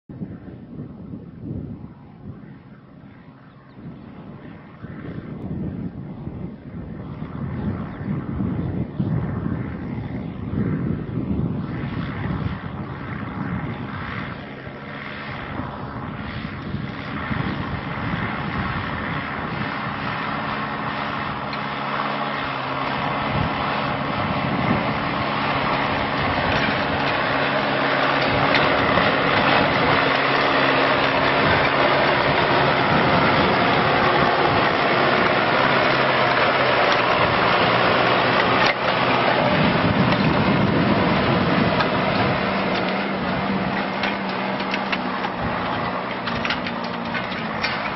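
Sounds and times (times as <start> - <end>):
broad rushing noise: 4.2 - 47.9
tractor engine running: 11.6 - 47.9.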